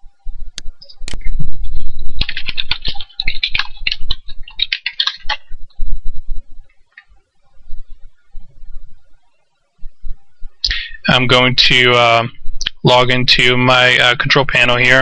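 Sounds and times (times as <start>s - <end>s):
computer keyboard typing: 2.2s - 5.5s
low rumble: 5.4s - 6.7s.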